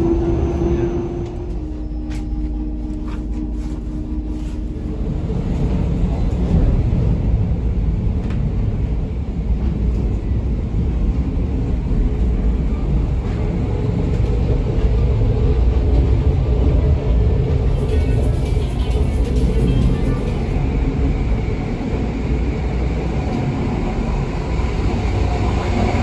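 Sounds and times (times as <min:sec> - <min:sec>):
train rumbling on rails: 0:00.0 - 0:26.0.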